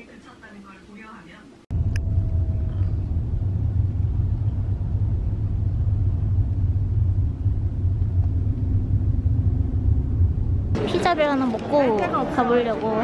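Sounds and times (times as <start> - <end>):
road and engine rumble in car: 1.7 - 11.2.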